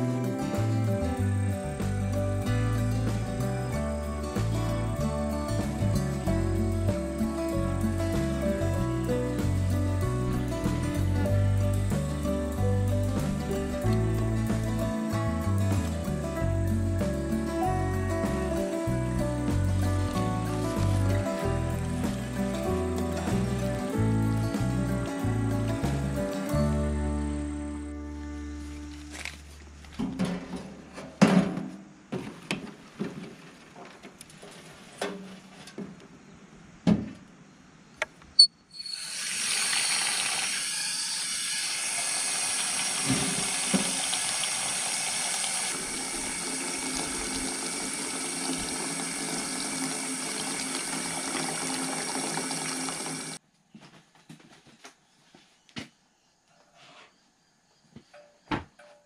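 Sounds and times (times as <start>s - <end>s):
knocks and rustles: 29.9s - 36.1s
hose water splashing into basin: 38.8s - 53.4s.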